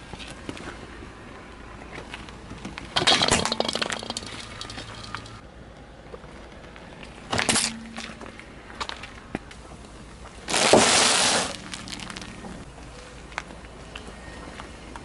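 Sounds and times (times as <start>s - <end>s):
tyre crunching metal tin: 3.0s - 5.4s.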